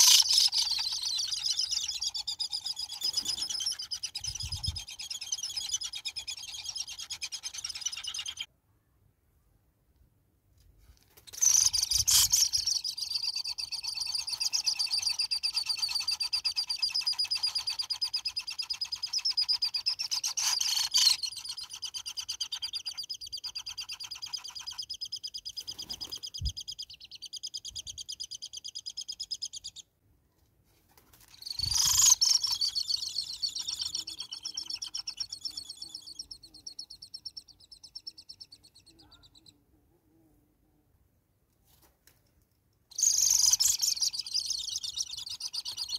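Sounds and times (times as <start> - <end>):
hornbill high-pitched chatter: 0.0 - 8.5, 11.4 - 27.4, 31.4 - 39.5, 42.9 - 45.9.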